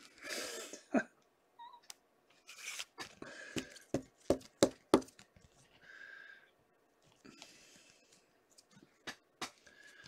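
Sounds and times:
cards and plastic sleeves rustling: 2.3 - 5.8.

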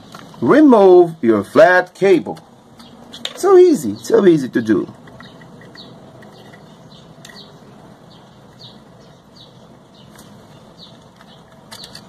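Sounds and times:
small bird chirping: 2.5 - 12.0
light clicks of handled parts: 4.9 - 7.5, 10.1 - 12.0.

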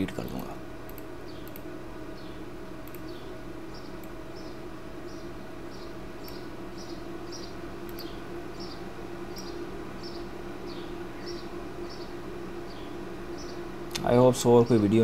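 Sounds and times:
steady low hum: 0.0 - 15.0
computer mouse clicks: 0.3 - 1.7, 2.8 - 3.2, 6.2 - 6.4, 7.8 - 8.2.

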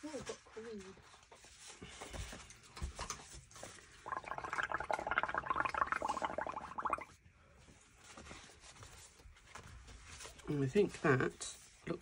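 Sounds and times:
bubbling through a straw: 4.0 - 7.2.

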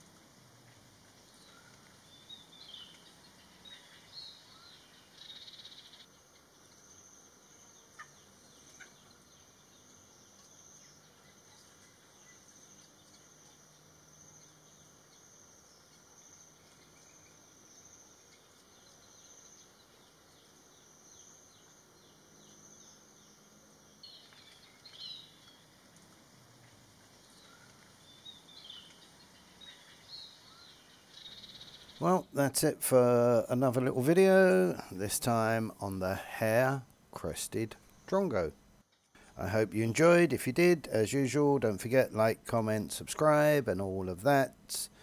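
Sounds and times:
high insect buzz: 0.0 - 32.2.

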